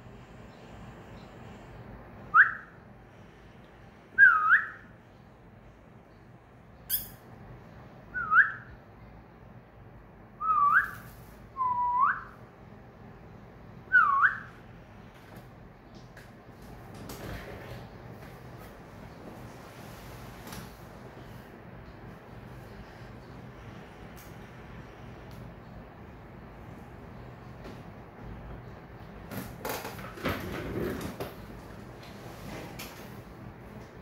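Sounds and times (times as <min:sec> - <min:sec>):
cockatiel whistling: 0:02.3 - 0:02.7, 0:04.2 - 0:04.8, 0:11.6 - 0:12.4, 0:13.9 - 0:14.5.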